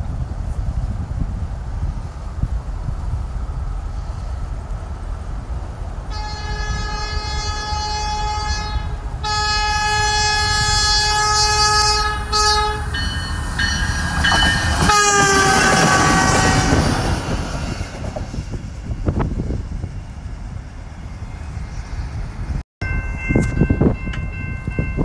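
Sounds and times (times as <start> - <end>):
train rumbling past: 0.0 - 25.0
train horn blasts: 6.1 - 13.1, 14.7 - 16.9.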